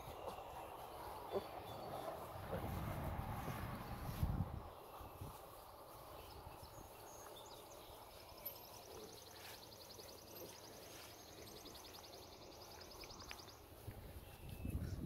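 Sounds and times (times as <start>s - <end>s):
faint outdoor hiss: 0.0s - 15.0s.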